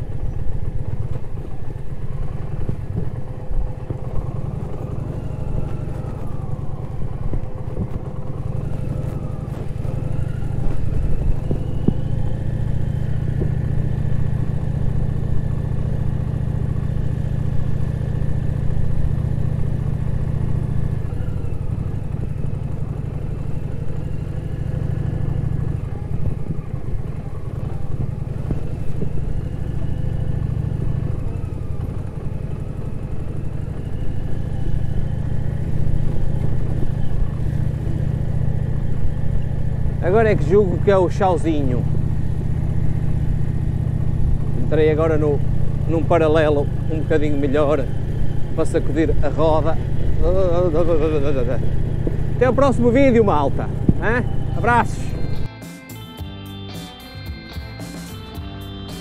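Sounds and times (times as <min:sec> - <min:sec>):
motorcycle engine running: 0:00.0 - 0:59.0.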